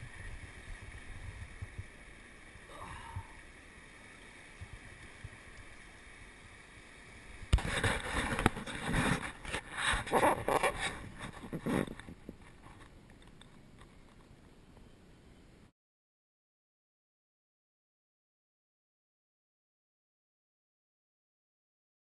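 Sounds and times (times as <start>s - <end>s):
river water over rocks: 0.0s - 14.5s
close splashing and rustling: 7.4s - 12.8s.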